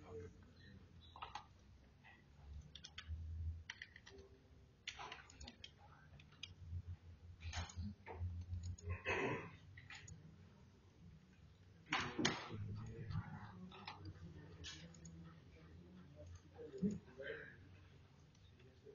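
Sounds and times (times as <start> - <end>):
computer mouse clicks: 1.0 - 1.6, 2.5 - 6.8, 7.4 - 8.9, 11.9 - 15.3.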